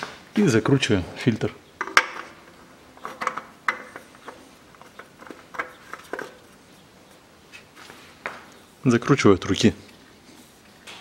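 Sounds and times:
oil filter clicking and scraping: 0:01.8 - 0:07.7.

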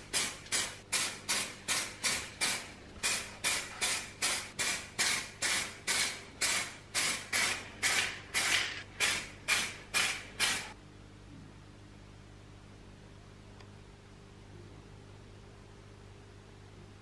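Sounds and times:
spray-paint can bursts: 0:00.1 - 0:10.8.

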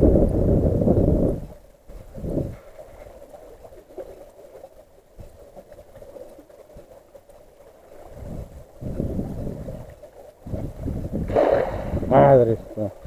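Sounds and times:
wind buffeting microphone: 0:00.0 - 0:03.4, 0:07.8 - 0:13.0.

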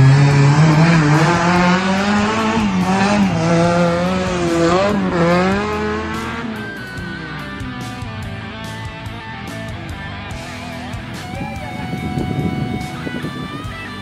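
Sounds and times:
buggy engine revving past: 0:00.0 - 0:08.3.

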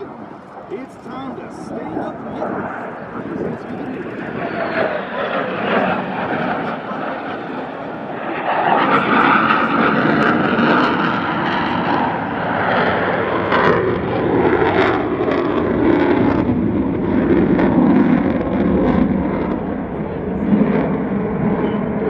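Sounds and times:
jet engine roar: 0:00.0 - 0:22.0.

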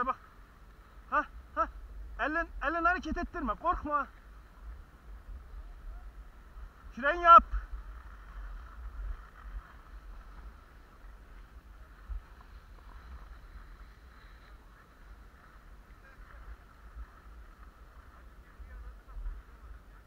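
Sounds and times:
skis sliding over packed snow: 0:00.0 - 0:20.0
wind rumble on microphone: 0:00.0 - 0:20.0.

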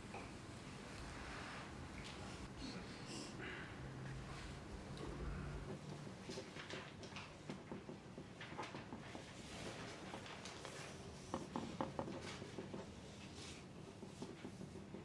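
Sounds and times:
pencils writing on paper: 0:08.9 - 0:15.0.

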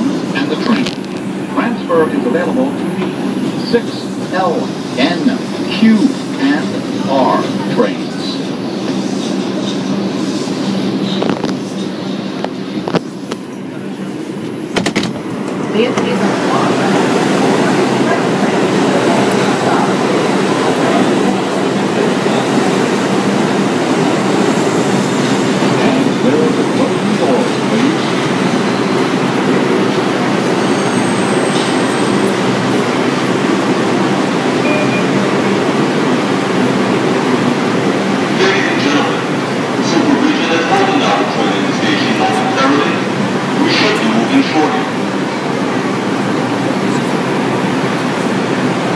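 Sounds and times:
train humming and rumbling: 0:00.0 - 0:48.9.

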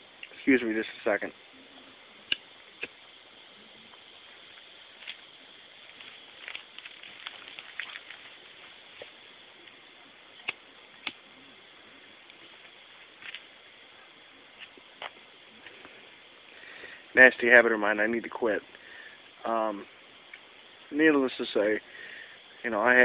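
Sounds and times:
steady low hiss: 0:00.0 - 0:23.0
cigarette crackling: 0:00.2 - 0:17.3.

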